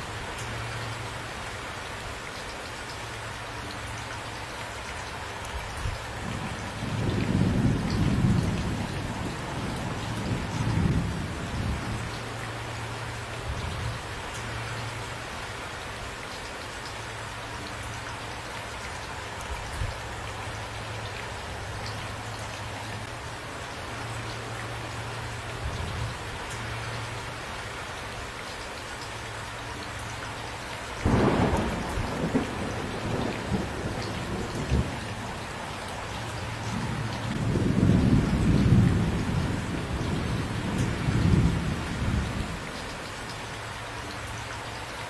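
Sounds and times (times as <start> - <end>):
steady rain falling: 0.0 - 45.0
thunder rumbling: 6.3 - 12.2, 31.0 - 42.6.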